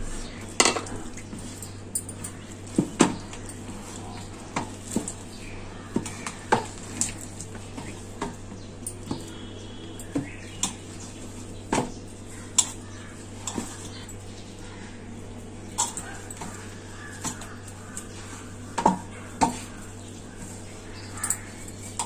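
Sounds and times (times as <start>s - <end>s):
low steady hum: 0.0s - 22.0s
dough knocking against steel bowl: 0.6s - 1.0s.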